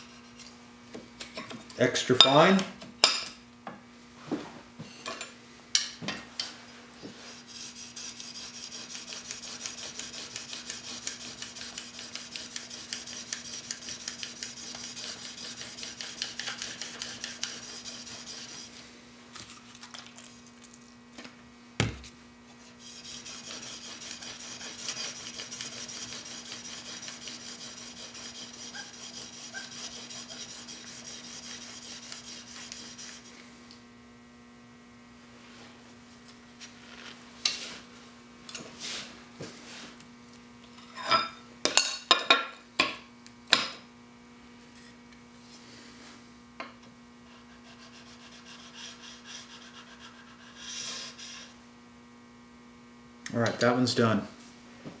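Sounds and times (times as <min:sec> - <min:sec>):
faint steady hum: 0:00.0 - 0:55.0
chisel scraping on sharpening plate: 0:07.5 - 0:18.6, 0:22.8 - 0:33.2.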